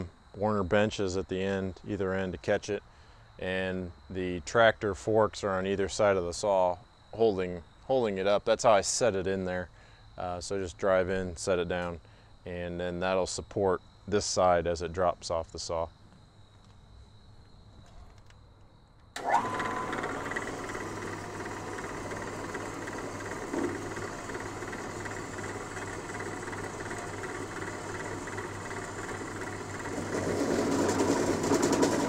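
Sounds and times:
bandsaw cutting steel: 19.2s - 32.0s.

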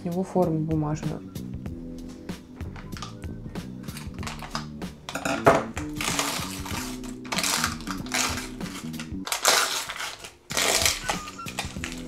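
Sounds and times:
background music: 0.0s - 12.0s
paper crinkling and tearing: 3.8s - 12.0s.

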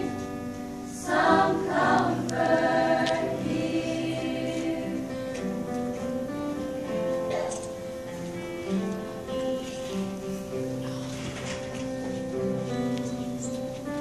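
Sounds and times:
choir singing in parts: 0.0s - 5.6s.

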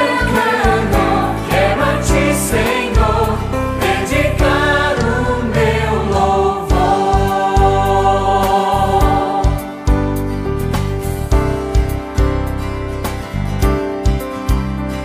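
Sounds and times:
choir singing worship song: 0.0s - 10.2s
instrumental accompaniment with beat: 0.0s - 15.0s.

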